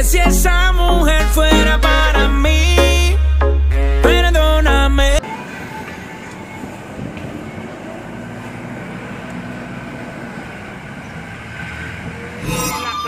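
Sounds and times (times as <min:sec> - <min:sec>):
car engine and road noise: 0:04.3 - 0:12.7.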